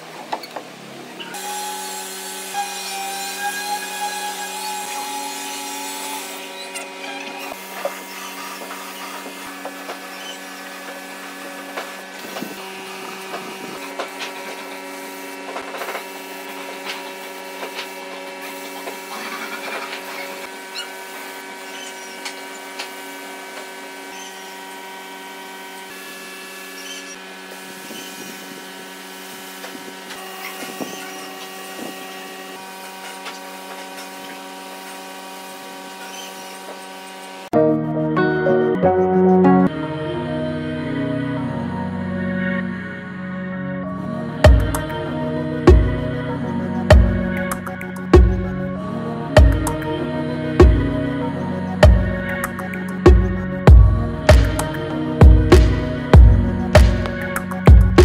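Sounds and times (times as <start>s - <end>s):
mechanical hum: 0.0s - 37.6s, 39.7s - 58.0s
spray gun hissing: 12.0s - 23.1s.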